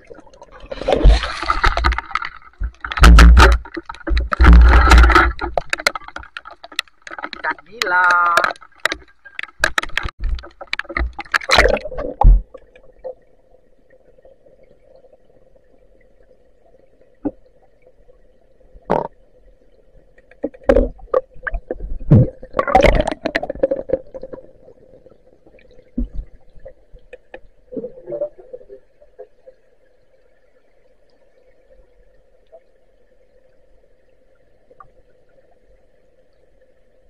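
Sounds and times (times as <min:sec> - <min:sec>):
water splashing and sloshing: 0:00.0 - 0:37.0
underwater knocks: 0:00.8 - 0:12.8, 0:20.2 - 0:24.4
water bubbling: 0:20.5 - 0:26.9.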